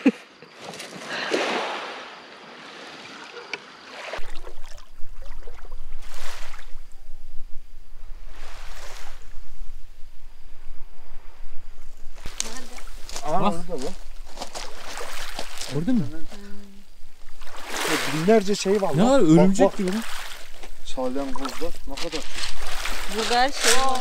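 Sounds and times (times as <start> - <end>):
waves lapping on pebble shore: 1.0 - 4.6, 6.0 - 6.7, 12.2 - 16.1, 17.4 - 24.0.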